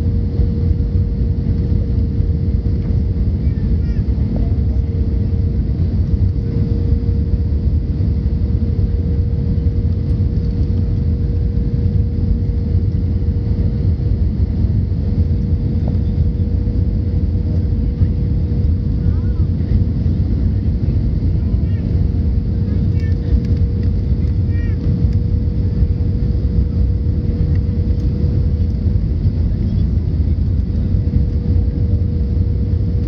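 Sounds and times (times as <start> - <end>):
jet engine and airflow rumble: 0.0 - 33.0.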